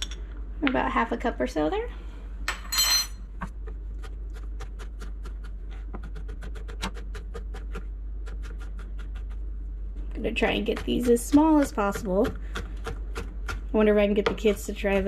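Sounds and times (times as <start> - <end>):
knife chopping on cutting board: 10.4 - 15.0.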